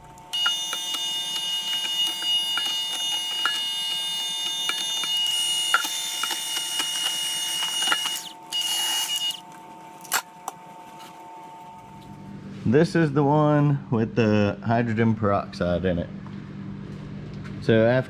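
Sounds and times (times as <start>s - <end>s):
electric hand mixer whine: 0.0s - 10.0s.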